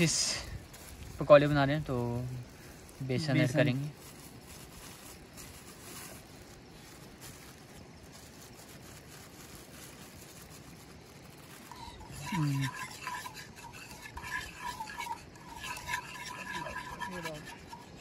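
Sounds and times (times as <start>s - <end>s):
batter stirred in a bowl: 0.0s - 6.7s, 9.9s - 18.0s
scraping and clicking in bowl: 11.7s - 18.0s.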